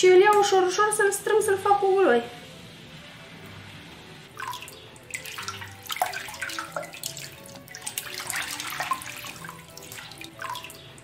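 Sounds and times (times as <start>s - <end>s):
hand sloshing through liquid: 4.4s - 10.9s
water splashes: 4.4s - 11.0s.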